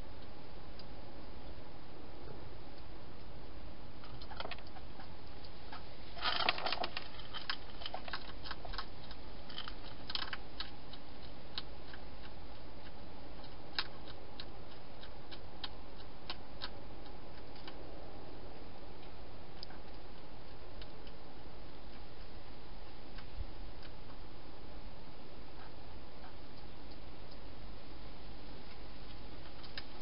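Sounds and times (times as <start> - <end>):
steady low hiss: 0.0 - 30.0
hedgehog crunching dry food: 4.0 - 24.3.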